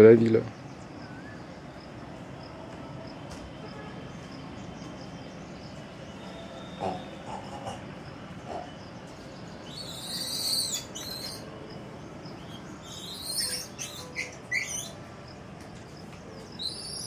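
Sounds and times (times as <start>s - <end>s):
high-pitched animal chirps: 9.7s - 11.5s, 12.8s - 15.0s.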